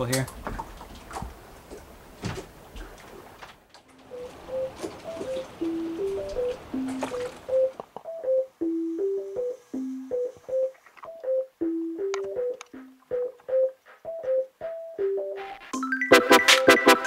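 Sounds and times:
hopping melody of single notes: 0:03.9 - 0:17.0
light clicking beat: 0:04.0 - 0:17.0.

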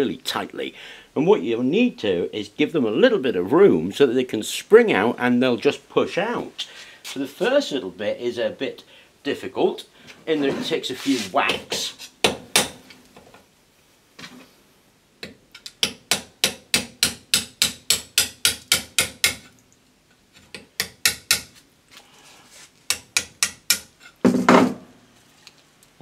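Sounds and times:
hammer striking steel bar: 0:15.8 - 0:19.4, 0:22.9 - 0:23.9.

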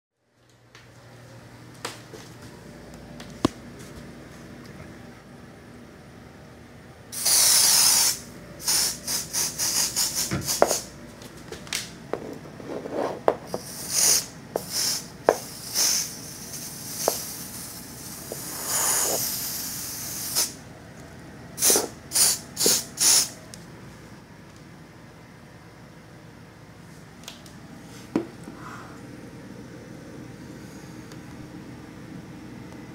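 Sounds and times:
aerosol can spraying: 0:07.2 - 0:10.9, 0:13.5 - 0:20.6, 0:21.6 - 0:23.4.

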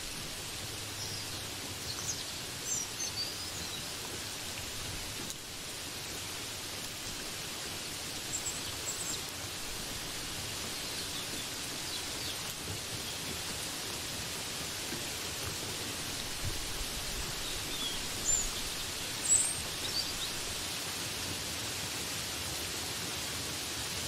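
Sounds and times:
steady rain hiss: 0:00.0 - 0:24.0.

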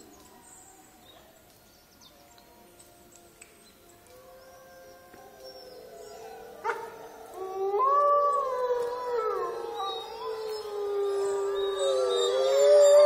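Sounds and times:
wolves howling: 0:03.9 - 0:13.0.

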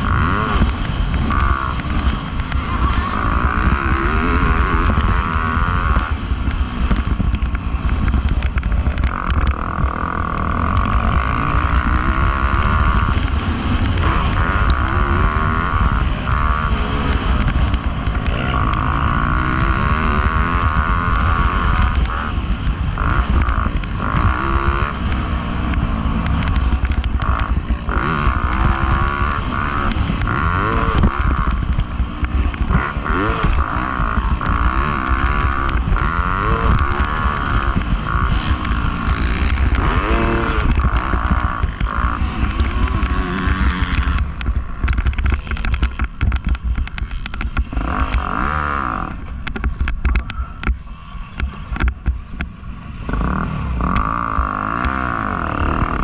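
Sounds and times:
dirt bike engine revving: 0:00.0 - 0:56.0
steady low rumble: 0:00.0 - 0:56.0.

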